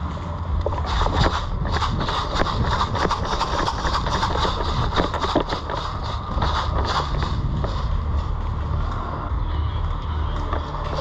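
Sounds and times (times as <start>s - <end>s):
low rumble: 0.0s - 11.0s
sharp clicks and knocks: 0.6s - 7.8s.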